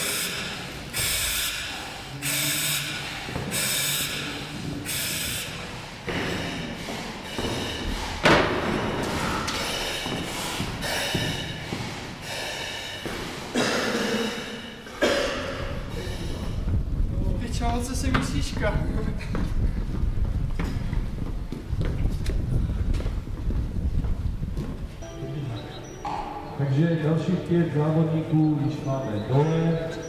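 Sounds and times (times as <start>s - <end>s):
hissing breaths through mask: 0.0s - 14.9s.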